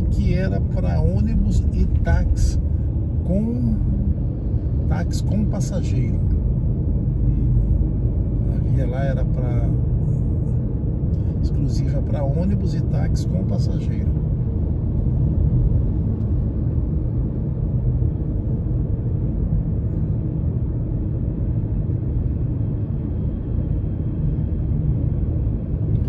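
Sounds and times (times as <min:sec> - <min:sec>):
tyre road noise: 0:00.0 - 0:22.1
car engine rumble: 0:00.0 - 0:26.0.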